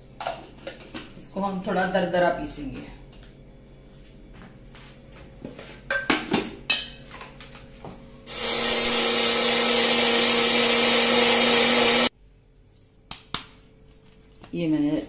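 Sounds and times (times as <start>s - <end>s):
blender motor grinding grain: 8.3s - 12.1s.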